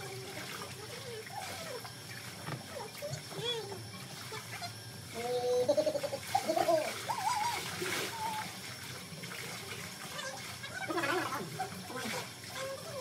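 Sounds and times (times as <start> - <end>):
pool water splashing: 3.9 - 13.0.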